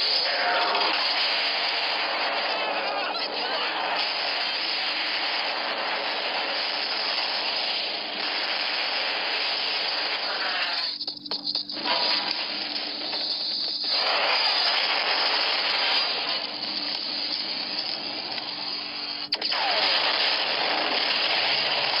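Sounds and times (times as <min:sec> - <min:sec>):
explosions and fire rushing: 0:00.0 - 0:11.0, 0:11.7 - 0:22.0.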